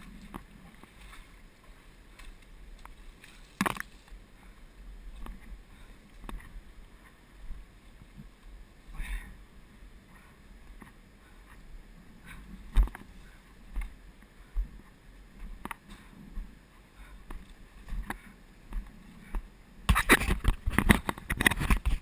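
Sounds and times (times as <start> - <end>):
branches brushing against camera: 19.9 - 22.0.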